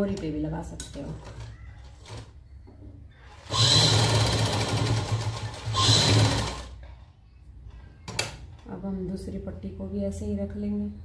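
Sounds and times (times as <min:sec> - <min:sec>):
sewing machine stitching: 0:03.3 - 0:06.8.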